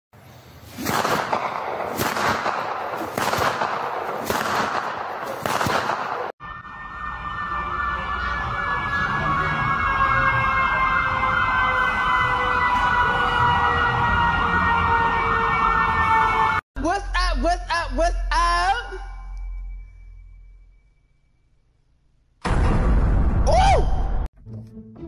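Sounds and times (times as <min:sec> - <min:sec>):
siren wailing with fast warble: 0:06.4 - 0:16.6.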